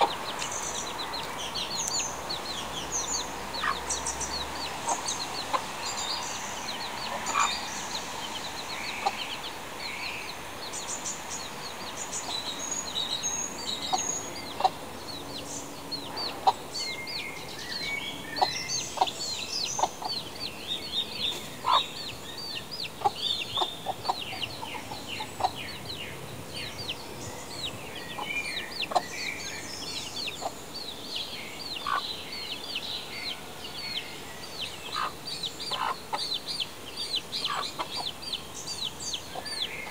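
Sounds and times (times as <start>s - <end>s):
chick peeping: 0.0s - 39.9s.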